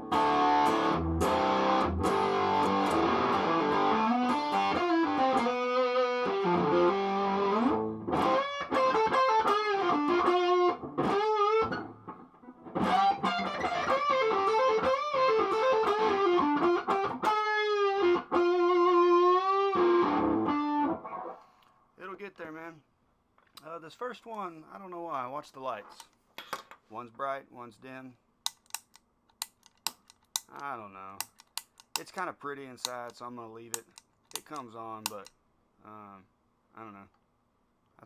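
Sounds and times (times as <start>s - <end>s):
distorted electric guitar: 0.0s - 21.3s.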